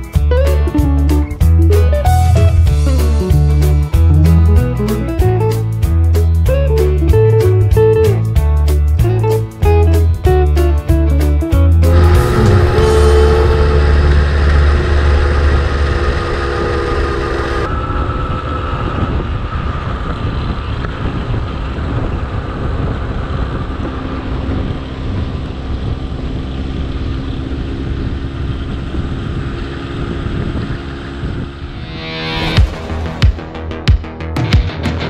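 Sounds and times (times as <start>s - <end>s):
steady tones: 0.0s - 6.0s, 11.7s - 20.1s
moped engine running: 11.8s - 31.7s
wind on microphone: 11.9s - 33.2s.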